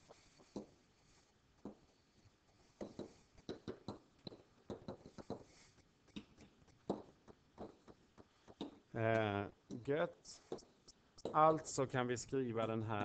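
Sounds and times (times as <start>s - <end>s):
pen tapping on digital board: 1.6s - 1.8s, 2.8s - 8.8s, 10.5s - 11.6s.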